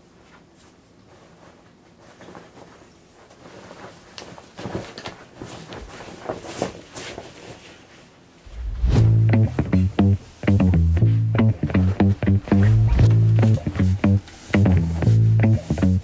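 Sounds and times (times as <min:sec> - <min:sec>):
bare feet shuffling on rug: 0:00.4 - 0:09.8, 0:10.4 - 0:16.0
denim jeans rustling: 0:10.4 - 0:15.8.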